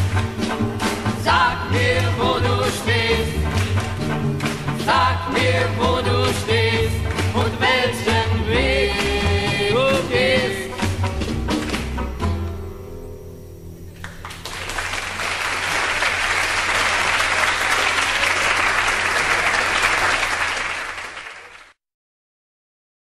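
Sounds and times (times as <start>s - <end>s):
audience applause: 14.0s - 21.8s.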